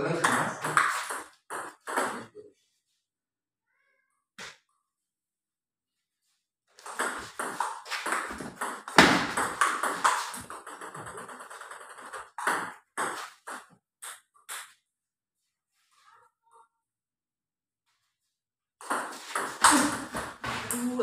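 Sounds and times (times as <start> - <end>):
ball bouncing to rest: 7.0 - 11.2.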